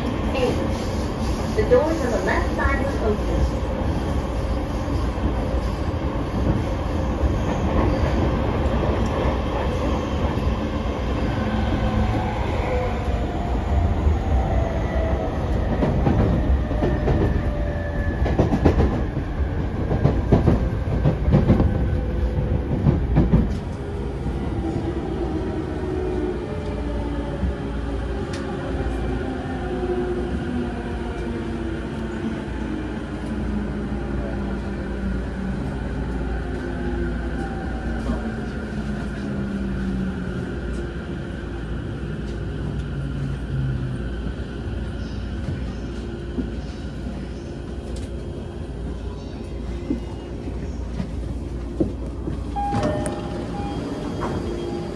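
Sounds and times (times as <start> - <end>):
train wheels rumbling: 0.0 - 36.7
low steady train hum: 0.0 - 54.9.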